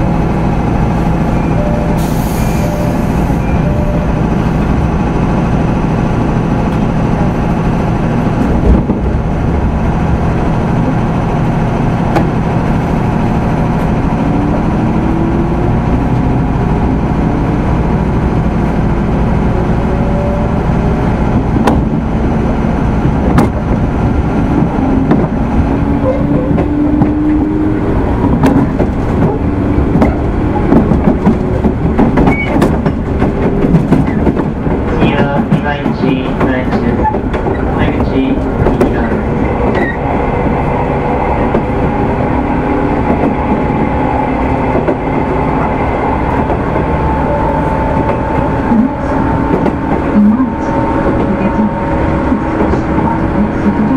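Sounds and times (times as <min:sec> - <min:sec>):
train wheels rumbling on rail: 0:00.0 - 0:53.9.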